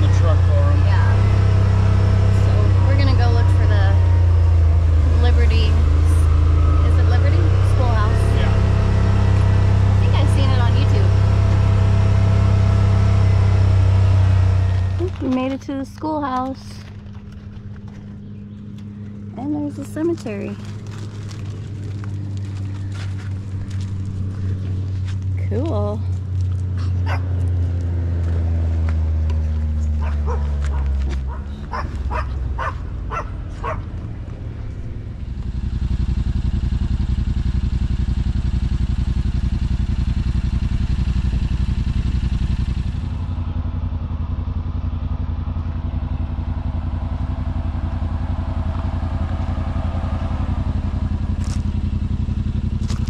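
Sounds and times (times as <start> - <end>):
engine idling: 0.0 - 53.0
small dogs yapping: 26.8 - 27.4, 29.9 - 34.0.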